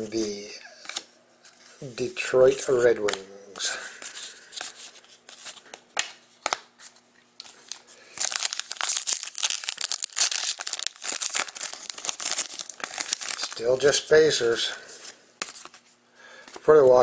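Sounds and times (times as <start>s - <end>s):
trading cards clicking: 3.0s - 3.3s
foil wrapper crinkling and tearing: 7.4s - 14.8s.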